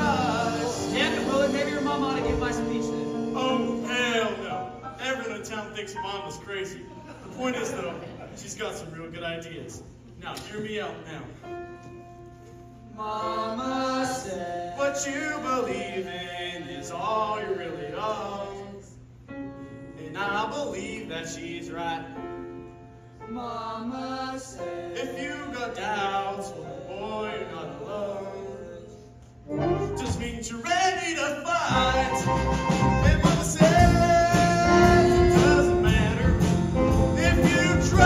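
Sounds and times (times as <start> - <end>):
band backing track with drums: 0.0 - 3.9, 31.7 - 38.0
young man singing: 0.0 - 5.0, 29.6 - 38.0
quiet backing music: 0.0 - 38.0.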